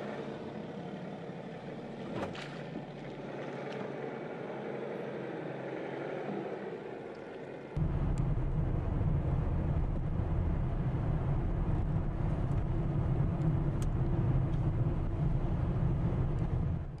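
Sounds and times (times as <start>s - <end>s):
low rumble inside car cabin: 7.8s - 17.0s.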